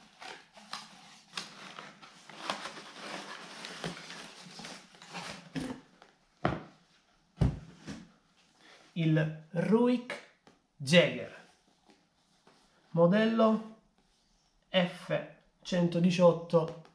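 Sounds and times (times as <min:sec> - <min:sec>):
cardboard and paper rustling: 0:00.0 - 0:06.2.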